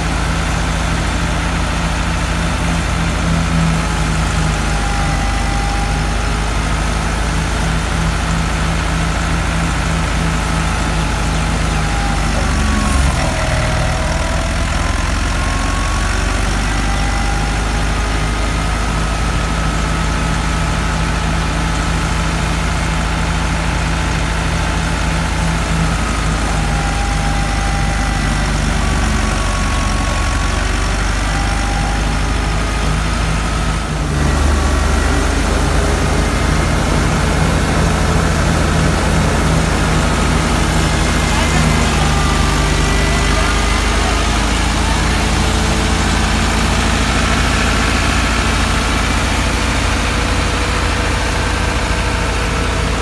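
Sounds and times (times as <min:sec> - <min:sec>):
diesel tractor engine running: 0:00.0 - 0:53.0
high whine of thresher: 0:00.0 - 0:53.0.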